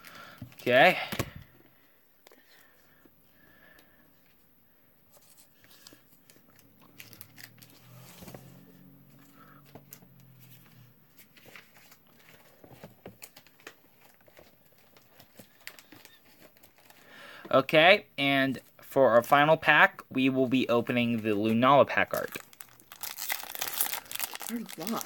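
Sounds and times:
plastic card sleeves rustling: 21.0 - 25.0.

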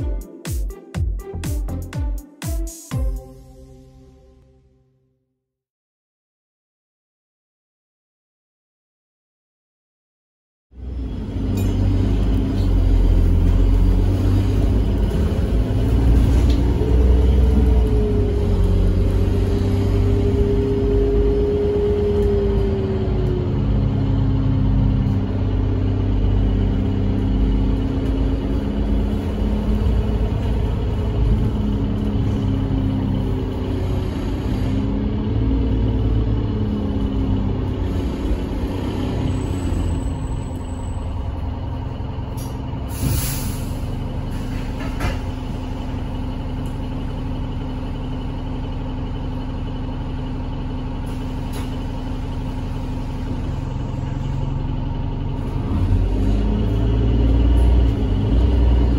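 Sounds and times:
bus diesel engine droning: 10.8 - 58.9
air hiss: 42.9 - 43.8.

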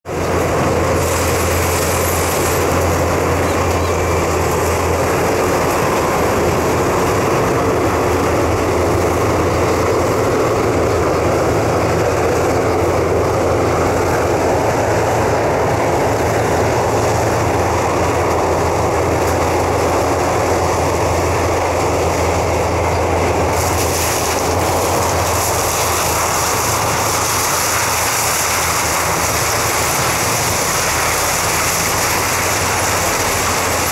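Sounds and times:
harvester engine droning: 0.1 - 33.9.

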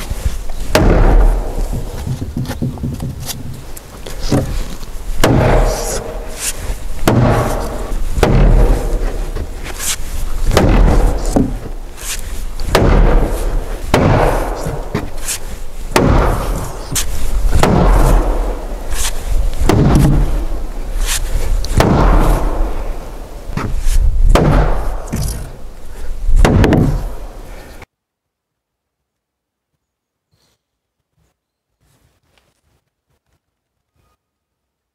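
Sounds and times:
wooden mallet striking timber: 0.7 - 3.7, 5.2 - 9.5, 10.5 - 11.8, 12.6 - 15.2, 15.9 - 18.7, 19.6 - 20.6, 21.7 - 22.7, 23.6 - 25.4, 26.4 - 27.1.

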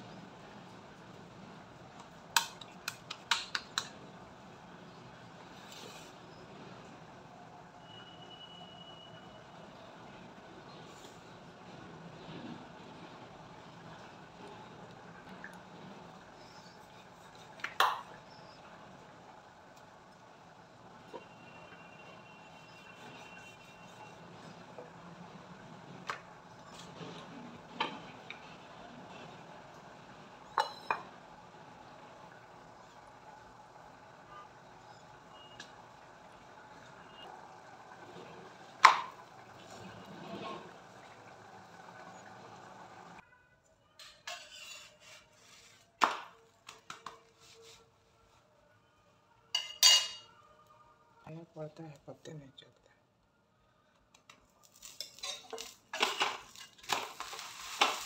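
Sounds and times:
spatula scraping on iron griddle: 44.2 - 45.8.

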